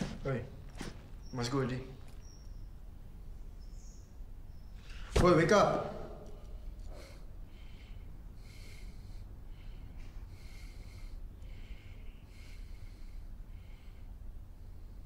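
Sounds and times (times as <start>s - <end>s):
low room hum: 0.0s - 15.0s
man breathing through the nose: 6.5s - 15.0s.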